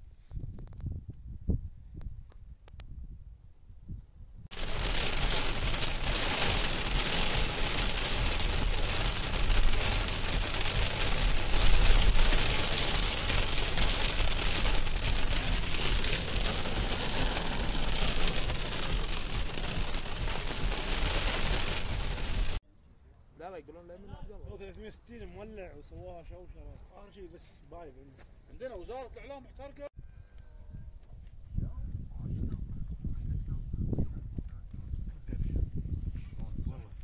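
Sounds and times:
dense crackling hiss: 4.5 - 22.6
low rumble: 4.5 - 22.6.

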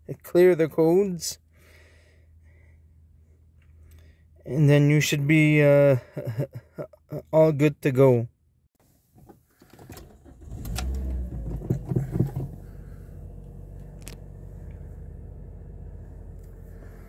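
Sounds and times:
car engine cranking and idling: 9.1 - 17.0.

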